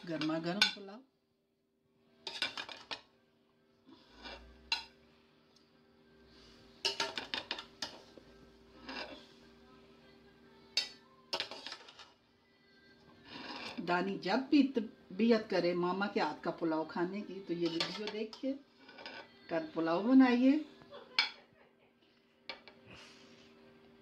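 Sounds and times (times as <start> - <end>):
metal spoon scraping a pot: 2.2 - 3.0, 3.9 - 5.0, 6.8 - 9.5, 10.7 - 12.2, 13.2 - 13.9, 17.3 - 19.5.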